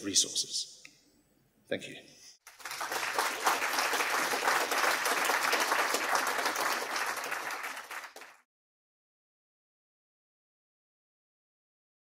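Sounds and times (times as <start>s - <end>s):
audience applauding: 2.4s - 8.5s.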